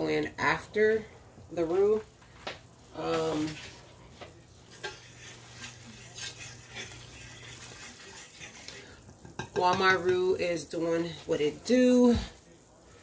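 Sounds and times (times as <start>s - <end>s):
faint sizzling: 0.0s - 13.0s
utensil scraping and tapping: 4.7s - 10.2s.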